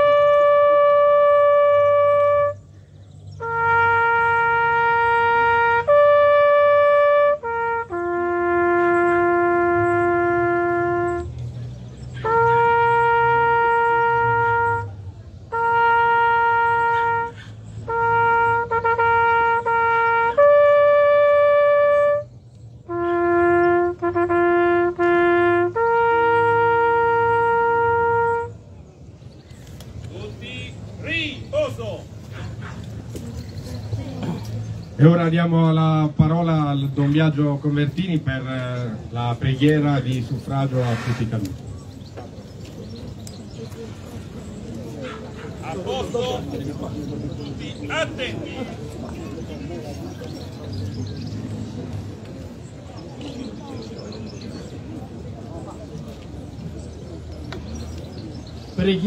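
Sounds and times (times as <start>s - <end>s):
solo trumpet bugle call: 0.0s - 2.8s, 3.4s - 11.4s, 12.2s - 22.3s, 22.9s - 28.6s.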